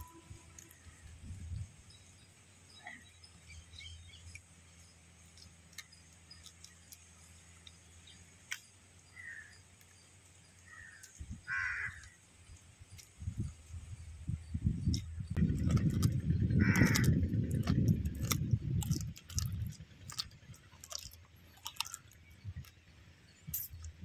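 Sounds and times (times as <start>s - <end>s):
crows cawing: 9.2s - 9.6s, 10.7s - 12.2s, 16.5s - 17.2s
crab shell crunching: 14.9s - 22.8s.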